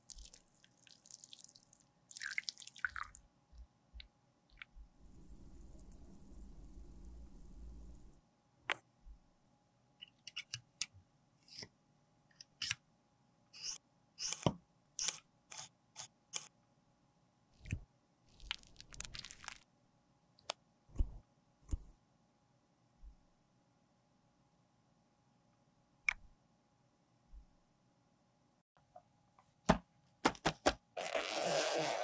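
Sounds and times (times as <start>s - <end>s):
low steady noise: 2.9s - 10.0s.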